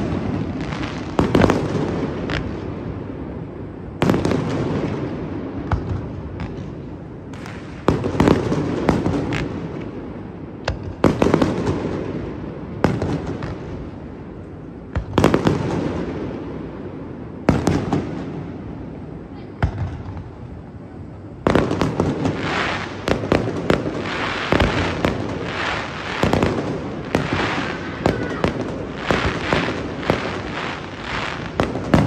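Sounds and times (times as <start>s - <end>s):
firework cracks and pops: 0.0s - 2.8s, 4.0s - 10.0s, 10.6s - 16.4s, 21.4s - 32.0s
firework booms: 0.0s - 14.2s, 14.8s - 32.0s.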